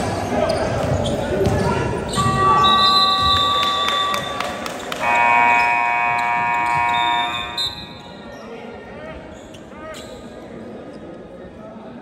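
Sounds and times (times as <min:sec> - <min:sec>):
scoreboard buzzer blasts: 0:05.0 - 0:07.6.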